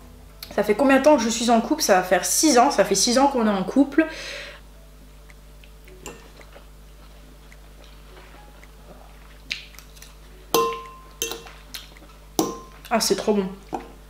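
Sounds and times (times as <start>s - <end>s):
chewing noodles: 5.3s - 10.3s, 11.4s - 13.0s
metal fork clinking glass bowl: 10.6s - 11.6s.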